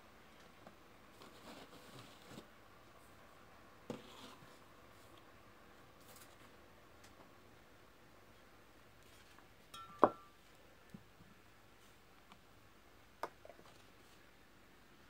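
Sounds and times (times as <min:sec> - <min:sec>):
sharp clink with ring: 0:09.7 - 0:10.3.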